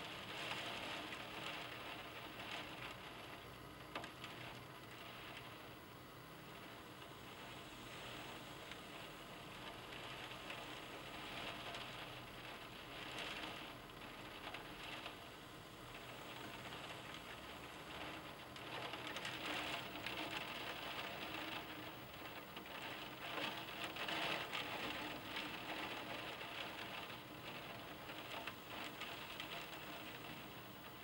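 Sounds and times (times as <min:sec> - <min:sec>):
wind-driven rain hissing: 0:00.0 - 0:31.0.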